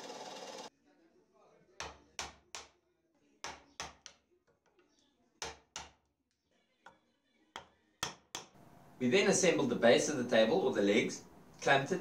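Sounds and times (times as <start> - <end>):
chisel knocks on wood: 1.8 - 2.7, 5.4 - 6.0.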